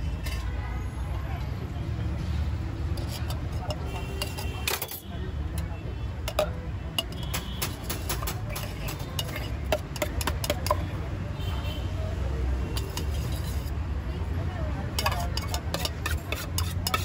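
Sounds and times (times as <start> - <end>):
knife tapping a steel tin: 6.3 - 10.9, 15.0 - 17.0.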